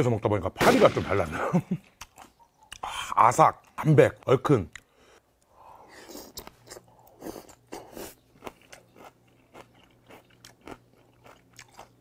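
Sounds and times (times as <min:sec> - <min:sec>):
person chewing crunchy food: 0:05.9 - 0:12.0.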